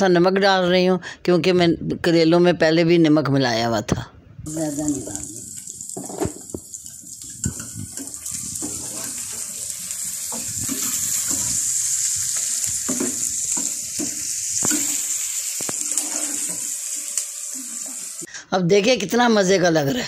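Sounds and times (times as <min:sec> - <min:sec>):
vegetables sizzling in a frying pan: 0:04.5 - 0:18.3.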